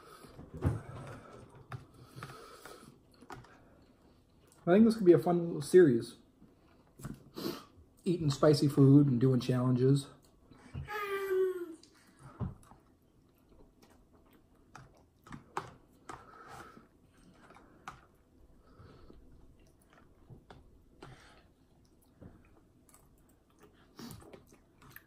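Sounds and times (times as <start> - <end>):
faint chewing of noodles: 11.7 - 25.0.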